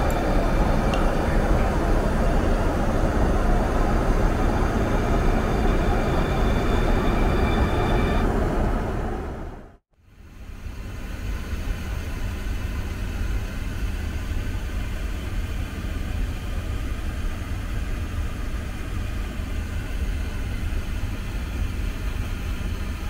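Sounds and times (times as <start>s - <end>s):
aircraft cabin low rumble: 0.0s - 9.8s.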